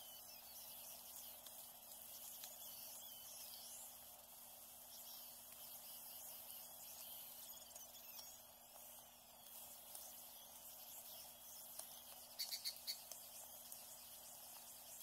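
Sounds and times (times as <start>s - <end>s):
high bird chirps: 12.0s - 13.4s.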